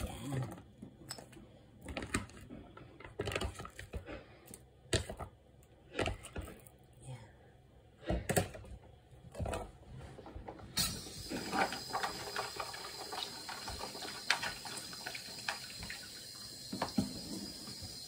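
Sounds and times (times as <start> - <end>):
tap running into sink: 10.8 - 18.0.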